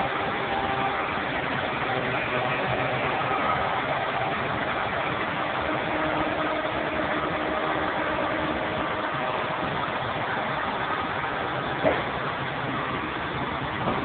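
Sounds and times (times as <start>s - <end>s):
piling rig engine droning: 0.0s - 14.0s.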